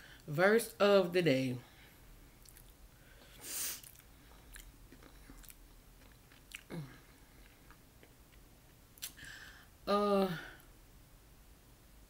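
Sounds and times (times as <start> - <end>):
person chewing: 2.4 - 9.3
breath: 3.0 - 4.4, 9.2 - 9.7.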